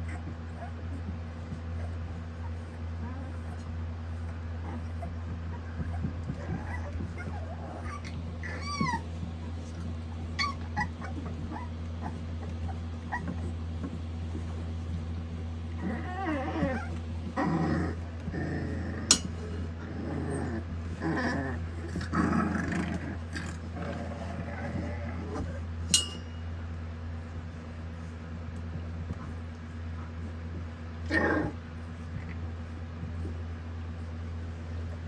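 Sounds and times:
puppies growling: 0.0s - 25.8s, 28.7s - 35.0s
steady low hum: 0.0s - 35.0s
puppies yipping: 1.8s - 13.6s
puppies squealing: 2.4s - 9.2s, 10.3s - 13.5s.

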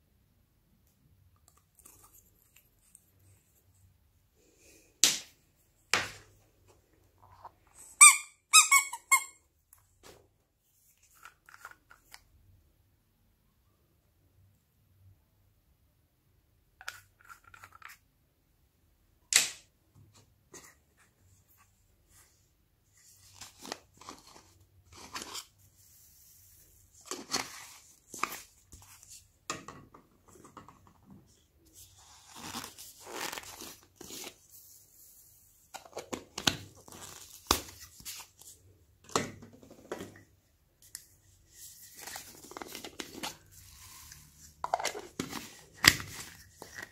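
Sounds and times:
rubber squeeze toy squeaking: 7.9s - 9.4s.

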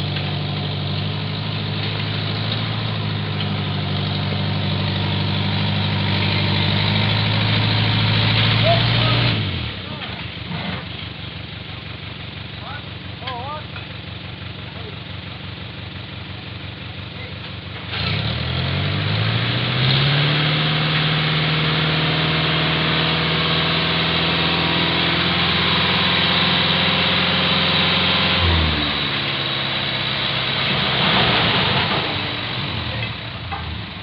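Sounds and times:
truck engine revving and idling: 0.0s - 34.0s.

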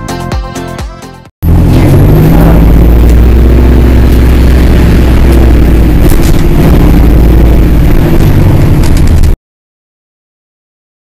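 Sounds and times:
bus engine drone: 1.4s - 9.4s.

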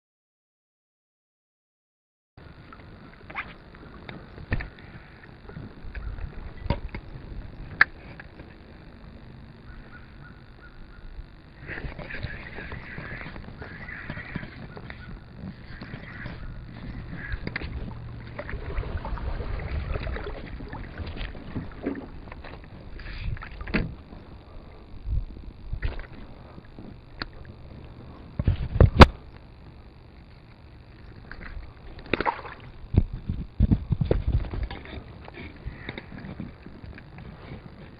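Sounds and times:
wind rumble on microphone: 2.4s - 37.9s
small water splashes: 17.2s - 23.8s, 31.2s - 32.8s.

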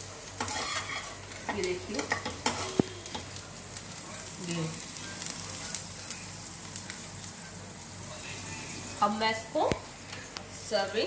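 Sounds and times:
potatoes sizzling in oil: 0.0s - 11.0s
spatula scraping pan: 0.4s - 3.2s.

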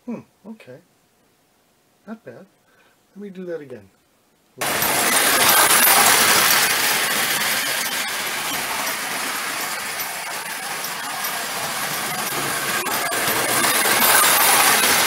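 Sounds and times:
wind-up toy train whirring rattle: 4.6s - 15.0s.

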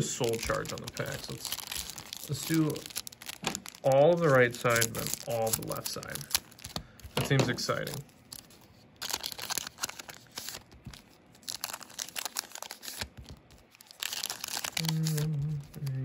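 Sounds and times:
wrappers tearing and crinkling: 0.0s - 16.0s
man humming: 14.8s - 16.0s.

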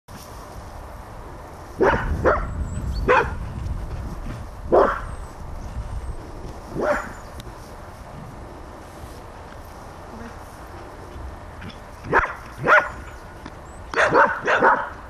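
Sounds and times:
dog barking: 1.8s - 2.5s, 3.1s - 3.4s, 4.7s - 5.1s, 6.8s - 7.2s, 12.1s - 13.1s, 13.9s - 15.0s.

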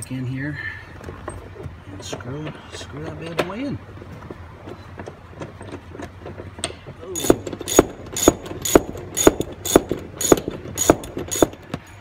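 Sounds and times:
ratchet wrench clicking: 7.2s - 11.8s.

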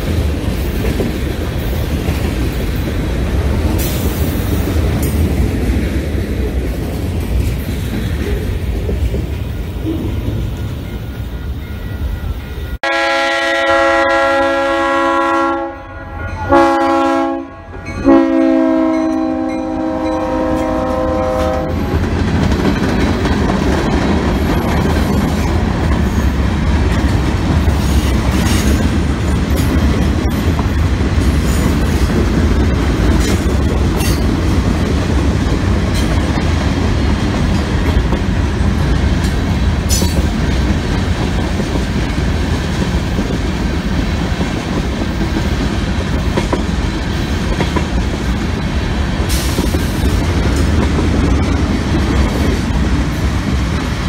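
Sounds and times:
locomotive air horn blasts: 12.7s - 21.8s
freight cars rumbling and clattering: 21.7s - 54.0s.

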